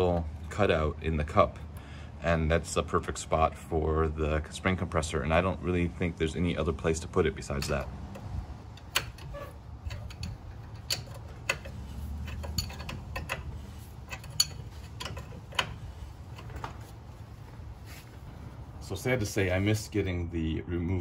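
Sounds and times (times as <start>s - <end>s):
metallic clicks of hand tools: 7.5s - 16.6s.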